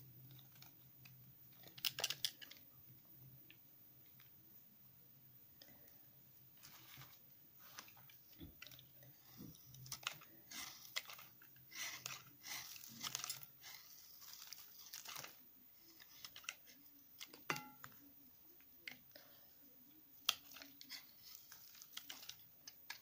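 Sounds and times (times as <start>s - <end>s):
blade scraping soap: 9.9s - 15.3s.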